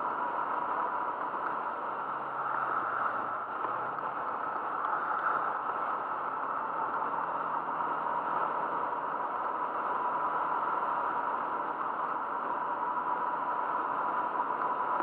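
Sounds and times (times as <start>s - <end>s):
faint steady whine: 0.0s - 15.0s
wind and tyre noise: 0.0s - 15.0s.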